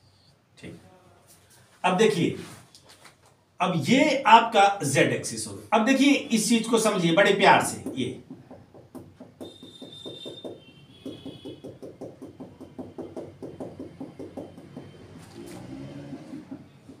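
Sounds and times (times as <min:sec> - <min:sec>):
marker tapping on whiteboard: 0:07.3 - 0:17.0.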